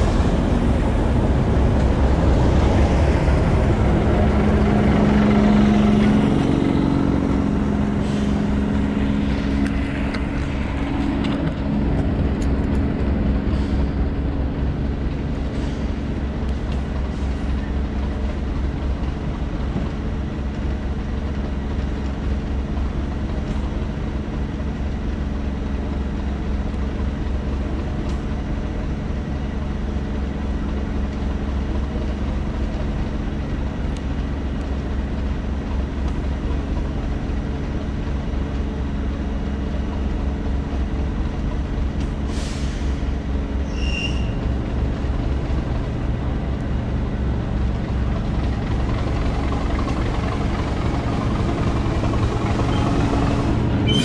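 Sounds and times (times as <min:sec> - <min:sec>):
train rumbling on rails: 0:00.0 - 0:54.0
high squeal: 0:43.6 - 0:44.5.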